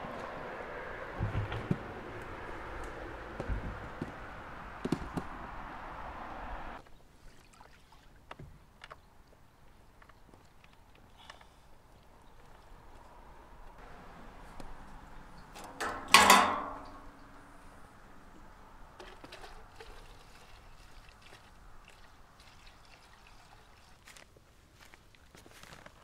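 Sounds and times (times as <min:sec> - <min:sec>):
fuel trickling through funnel: 0:13.8 - 0:25.0
loud metal clank: 0:15.6 - 0:17.4.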